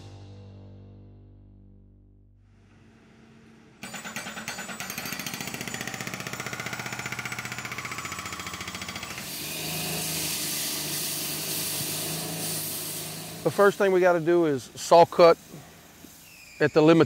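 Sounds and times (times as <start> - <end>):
concrete saw running: 3.4 - 16.0.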